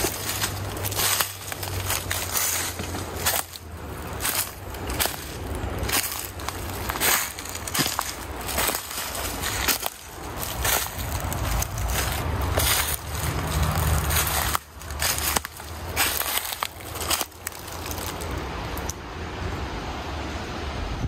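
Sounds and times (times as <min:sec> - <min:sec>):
footsteps crunching dry leaves: 0:00.0 - 0:18.7
wind rumble on microphone: 0:19.4 - 0:21.0.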